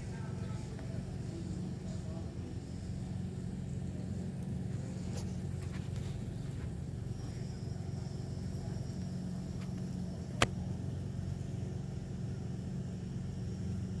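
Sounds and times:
steady low hum: 0:00.0 - 0:14.0
sharp click: 0:10.4 - 0:10.6.

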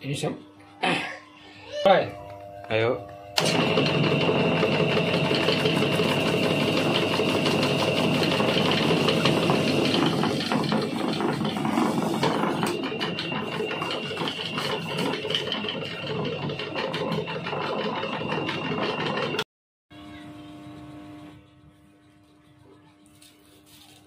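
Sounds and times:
electric motor with high whine: 0:00.0 - 0:19.4.

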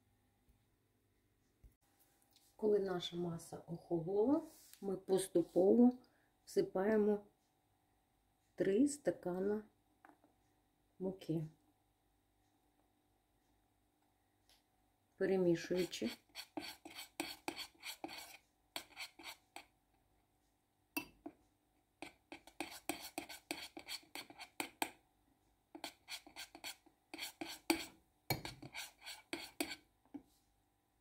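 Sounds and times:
spoon scraping a glass bowl: 0:15.6 - 0:19.7, 0:22.0 - 0:25.0, 0:25.8 - 0:29.8.

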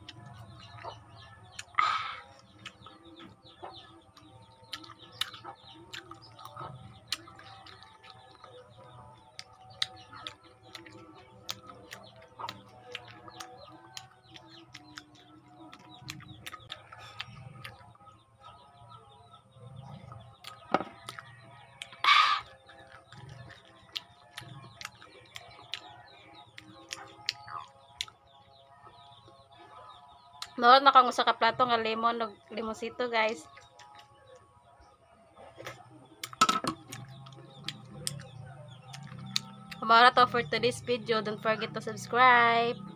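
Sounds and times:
wet chewing and sucking: 0:00.0 - 0:18.0, 0:20.0 - 0:28.2.

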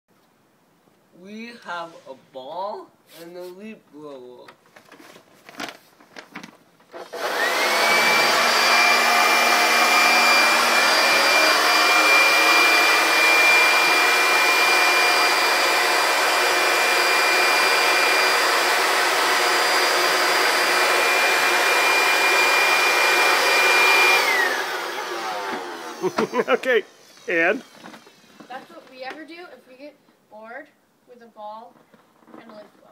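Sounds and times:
leaf blower whining: 0:06.9 - 0:28.8.

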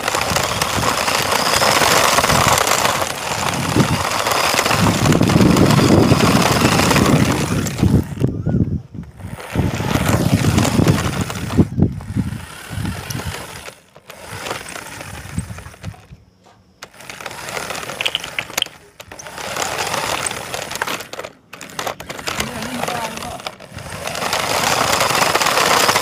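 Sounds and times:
rc car rattling and rumbling: 0:00.0 - 0:26.0
clicks: 0:15.3 - 0:23.7.

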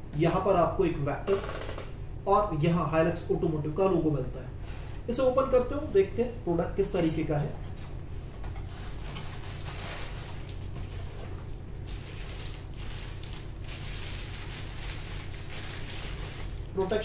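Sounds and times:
plastic packaging crinkling: 0:08.7 - 0:17.0.

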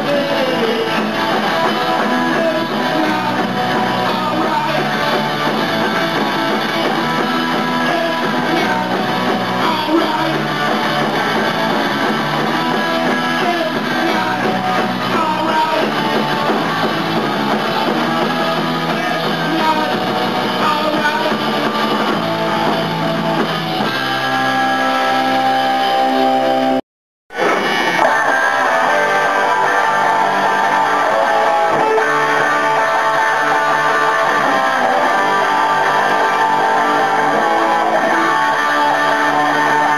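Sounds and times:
person singing: 0:00.0 - 0:05.3, 0:07.0 - 0:10.9, 0:12.6 - 0:16.1, 0:18.9 - 0:21.6, 0:27.4 - 0:39.9
drum kit: 0:00.0 - 0:39.9
electric guitar: 0:00.0 - 0:39.9.

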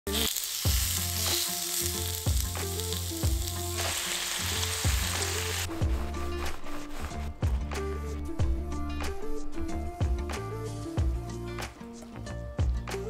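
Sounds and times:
chicken sizzling in a grill pan: 0:00.1 - 0:05.7
music with deep steady beat: 0:04.9 - 0:13.0.

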